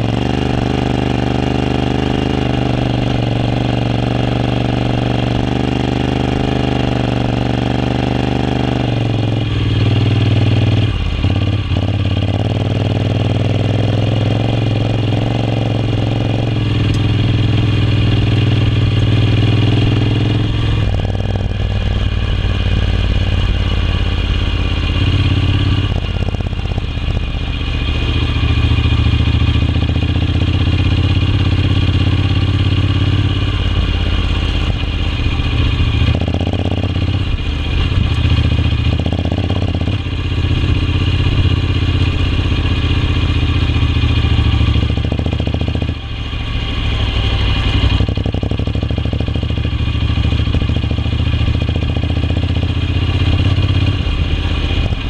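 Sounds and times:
motorcycle engine in sand: 0:00.0 - 0:55.0.

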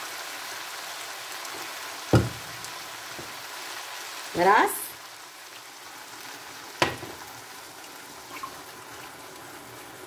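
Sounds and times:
water hissing in a hot frying pan: 0:00.0 - 0:10.0
sharp knock: 0:02.1 - 0:02.4.

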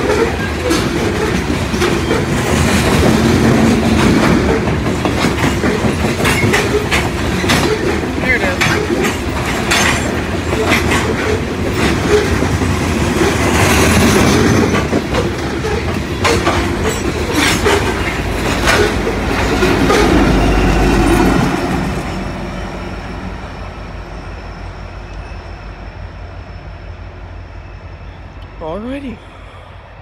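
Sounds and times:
train wheels clicking over rail joints: 0:00.0 - 0:22.1
heavy train rumble: 0:00.0 - 0:30.0.

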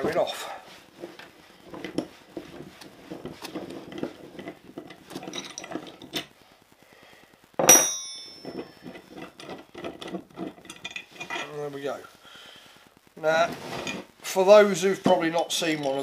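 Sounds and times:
small metallic clinks: 0:07.6 - 0:09.5.

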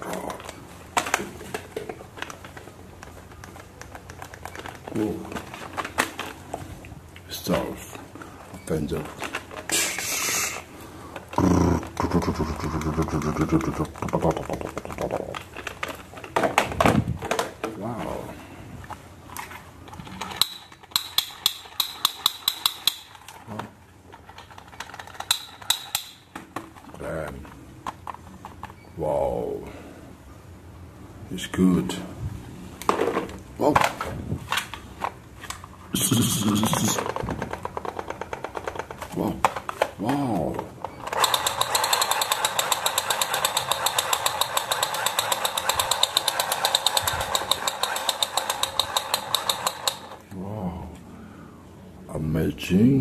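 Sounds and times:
plastic toy gun clicks: 0:20.1 - 0:23.3, 0:24.4 - 0:26.2, 0:41.1 - 0:50.2.

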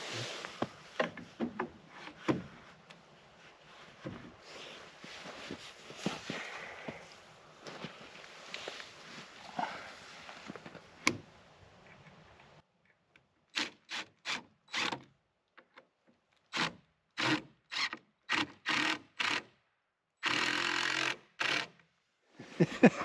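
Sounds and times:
power drill driving screws: 0:20.2 - 0:21.8.

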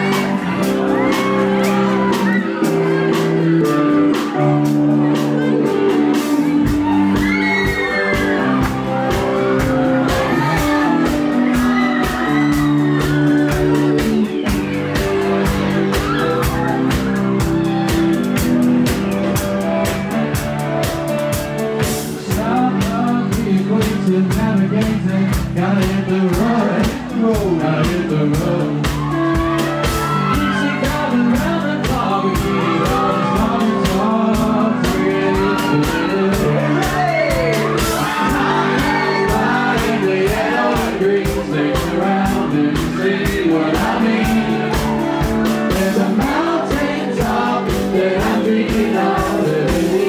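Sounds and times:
drum kit beat: 0:00.0 - 0:50.0
live band playing: 0:00.0 - 0:50.0
voices over music: 0:22.3 - 0:50.0.

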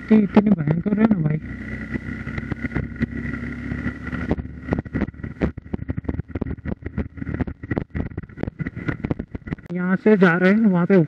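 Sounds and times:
motorcycle engine whine: 0:00.0 - 0:11.0
knocks and rattles: 0:02.1 - 0:09.7.

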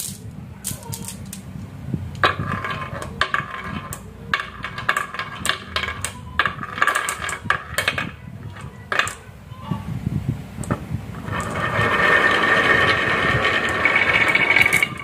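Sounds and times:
glass marbles clinking: 0:11.2 - 0:15.0.

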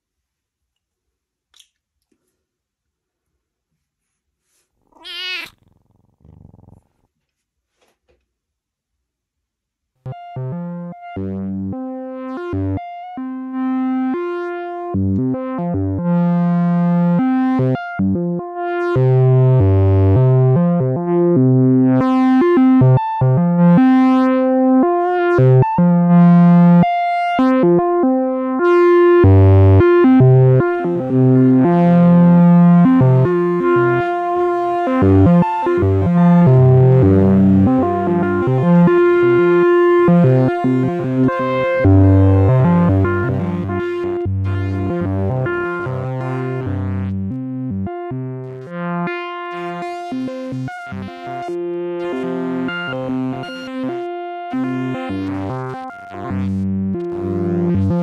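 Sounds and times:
synthesizer notes: 0:28.6 - 0:47.3.

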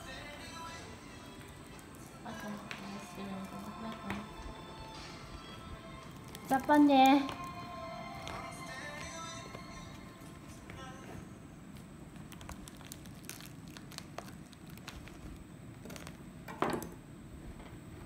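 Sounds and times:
husk crunching: 0:06.0 - 0:10.7, 0:12.2 - 0:16.2
small clicks and crackles: 0:12.2 - 0:16.2.

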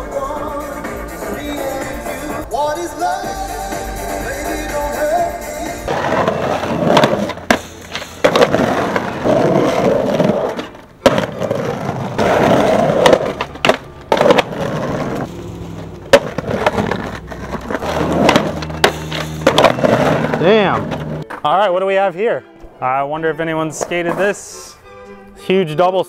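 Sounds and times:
skateboard wheels rolling on concrete: 0:00.0 - 0:21.7, 0:23.6 - 0:24.6
skateboard clacks and knocks: 0:05.9 - 0:21.5.

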